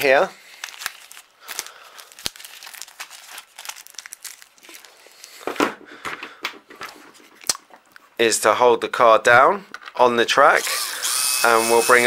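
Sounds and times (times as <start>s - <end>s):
tape and sandpaper crinkling: 0.0s - 5.5s.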